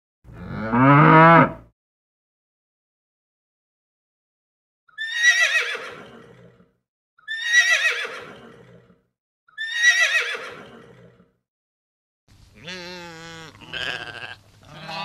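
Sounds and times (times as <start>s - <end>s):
horse whinnying: 5.0s - 9.0s, 9.6s - 11.2s.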